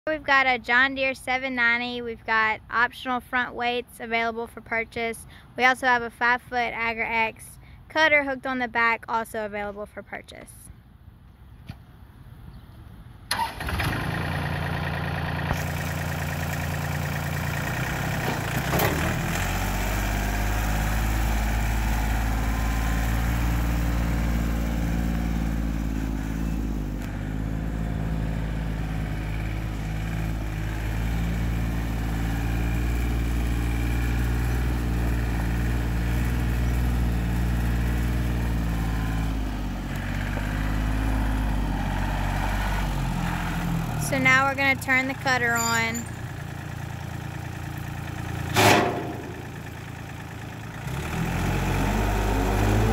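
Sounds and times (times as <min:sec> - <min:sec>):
tractor diesel engine: 0:13.1 - 0:52.9.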